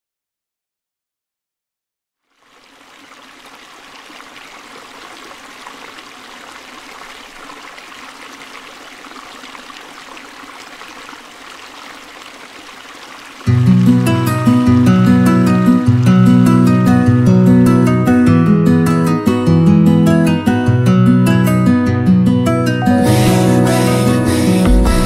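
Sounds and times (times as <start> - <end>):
stream running water: 2.2 - 17.3.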